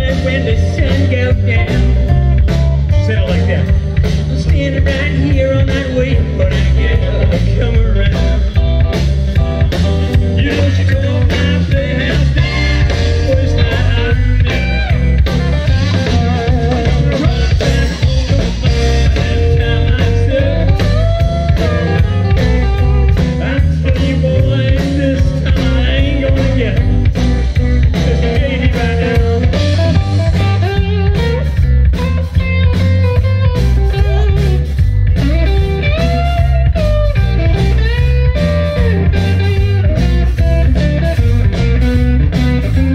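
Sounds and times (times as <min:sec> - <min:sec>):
electric guitar bending notes: 0:00.0 - 0:42.9
live blues band: 0:00.0 - 0:42.9.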